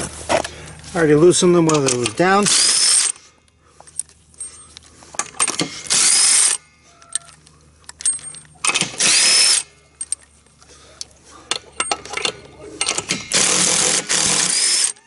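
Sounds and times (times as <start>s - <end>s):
cordless drill spinning: 13.2s - 15.0s.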